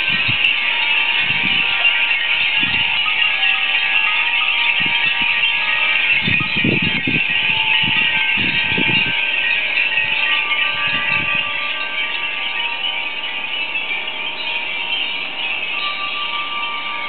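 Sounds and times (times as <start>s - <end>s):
wind rumbling on microphone: 0.0s - 3.3s, 4.6s - 11.9s
glass wind chimes tinkling: 0.0s - 17.0s.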